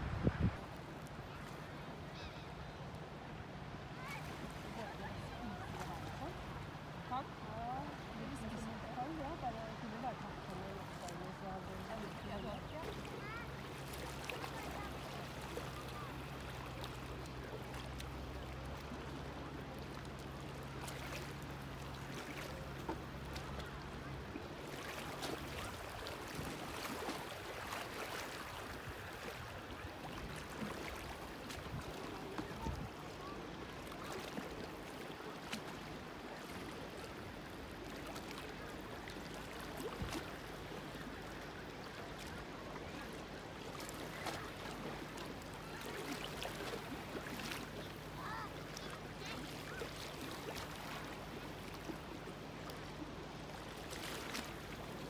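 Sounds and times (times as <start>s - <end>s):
water lapping against shore: 0.0s - 55.0s
faint distant voices: 3.7s - 17.9s.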